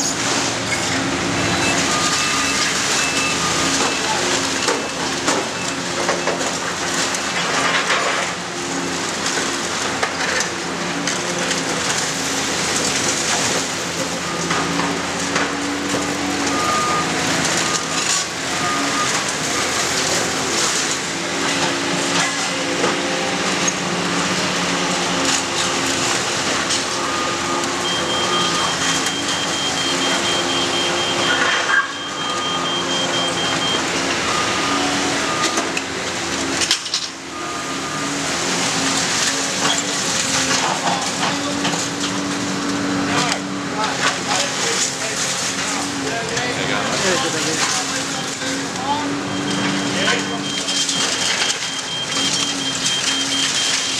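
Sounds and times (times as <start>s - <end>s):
diesel engines running: 0.0s - 53.9s
reversing alarms beeping: 0.7s - 6.5s, 13.3s - 20.9s, 25.0s - 35.9s, 37.2s - 38.2s, 47.0s - 53.9s.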